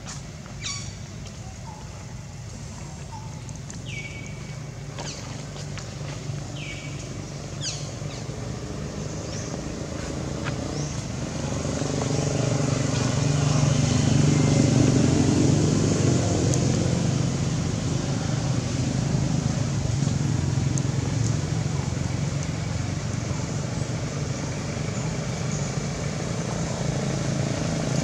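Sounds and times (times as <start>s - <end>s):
vehicle engine hum: 0.0s - 28.0s.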